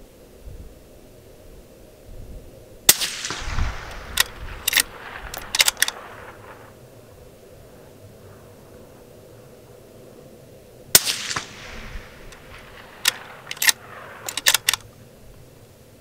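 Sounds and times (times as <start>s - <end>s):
sharp clicks: 2.9s - 6.8s, 11.0s - 15.0s
rifle shot: 2.9s - 7.6s, 10.9s - 14.9s.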